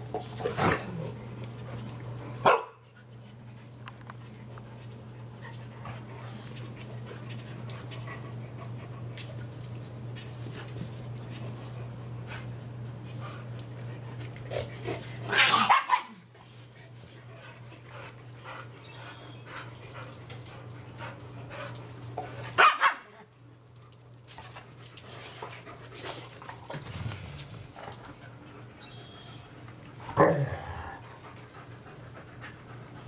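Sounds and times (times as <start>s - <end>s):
dogs barking: 2.4s - 2.8s, 15.3s - 16.2s, 22.6s - 23.2s.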